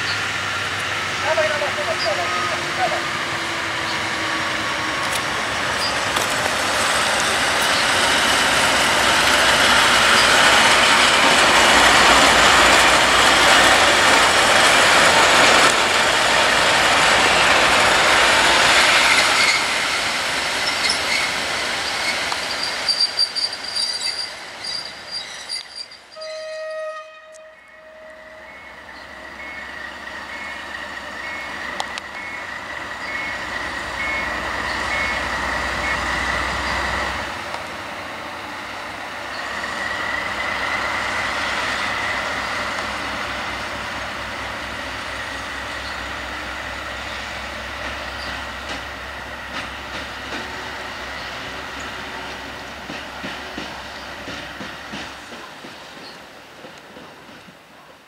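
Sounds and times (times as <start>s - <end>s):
diesel locomotive passing: 0.0s - 58.0s.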